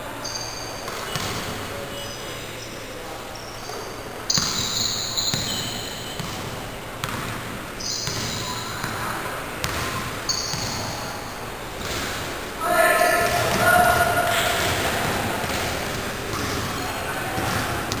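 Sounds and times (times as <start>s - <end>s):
sneakers squeaking on court: 0.2s - 18.0s
basketball bouncing: 0.8s - 1.7s, 4.3s - 11.0s, 11.8s - 12.3s, 13.2s - 16.8s, 17.4s - 18.0s.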